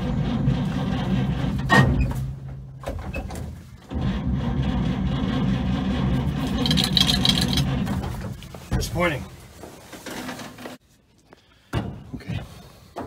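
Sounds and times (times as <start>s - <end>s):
engine starter cranking: 0.0s - 8.4s.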